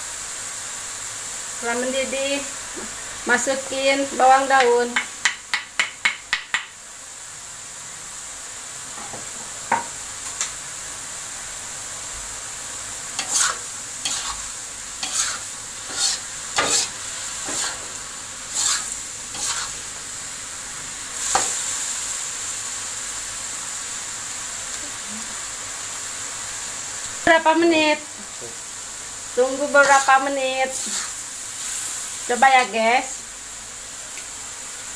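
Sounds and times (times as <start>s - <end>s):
stir-fry sizzling: 0.0s - 34.9s
metal spatula scraping wok: 13.2s - 19.9s, 29.7s - 31.2s.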